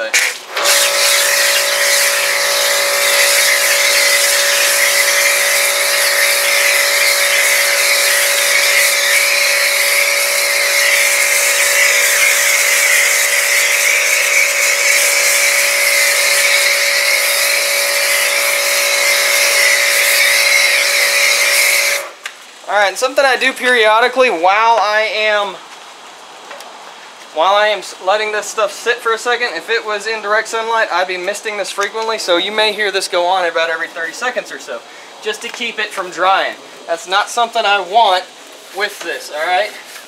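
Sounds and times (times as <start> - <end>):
pressure washer hum: 0.0 - 22.3
foam spraying hiss: 0.0 - 22.7.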